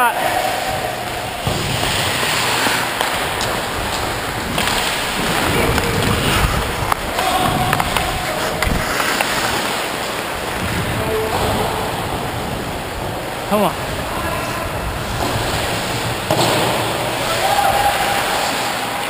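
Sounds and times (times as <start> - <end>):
hockey stick hitting puck: 1.0 - 10.0, 16.3 - 17.6
ice skates scraping ice: 1.4 - 10.9, 15.0 - 16.3, 17.3 - 19.0.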